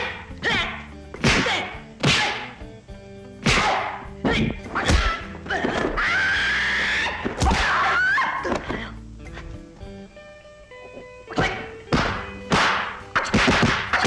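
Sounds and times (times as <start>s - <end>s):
person shouting: 0.0s - 2.6s.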